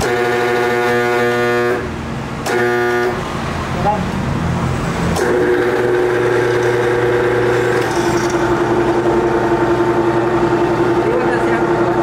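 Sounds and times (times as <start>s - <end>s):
lathe motor whine: 5.2s - 12.0s.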